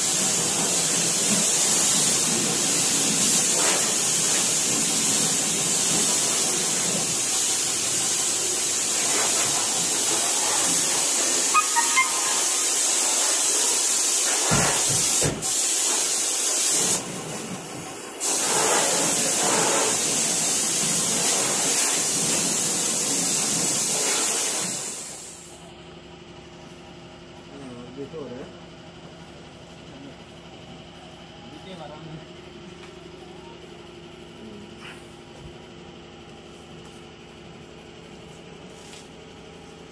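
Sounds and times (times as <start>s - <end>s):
spray gun hissing: 0.0s - 17.4s, 18.2s - 25.5s.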